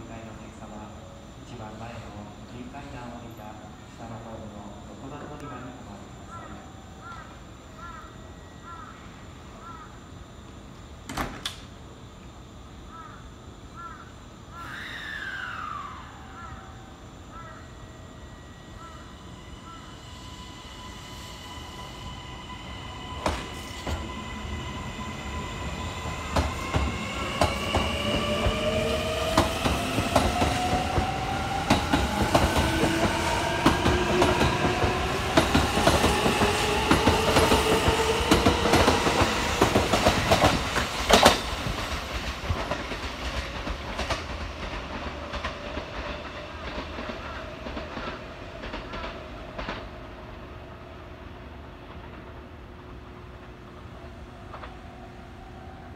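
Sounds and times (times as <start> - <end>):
electric train motor whine: 14.8 - 41.8
train wheel clatter: 26.0 - 50.1.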